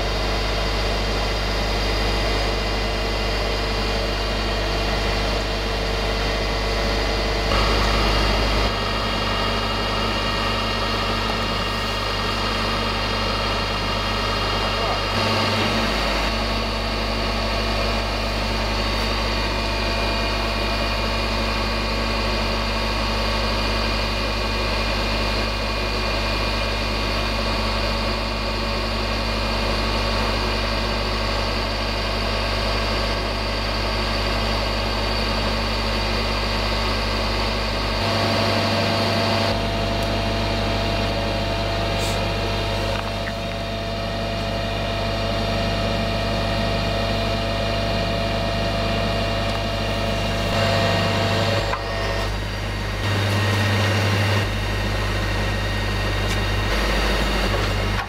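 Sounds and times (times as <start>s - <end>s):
diesel truck engine idling: 0.0s - 58.0s
hydraulic crane whine: 0.0s - 58.0s.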